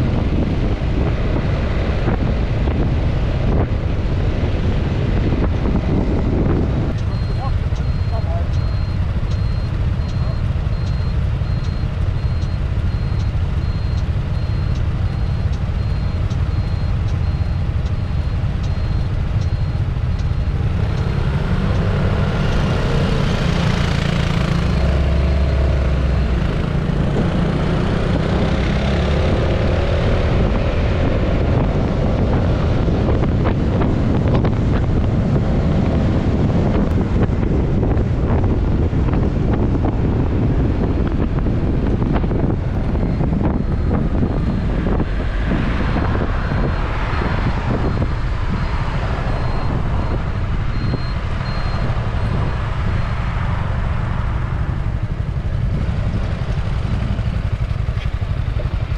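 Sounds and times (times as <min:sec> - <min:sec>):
other scooters: 0:00.0 - 0:58.9
wind noise on microphone: 0:00.0 - 0:58.9
scooter engine running: 0:54.6 - 0:58.9.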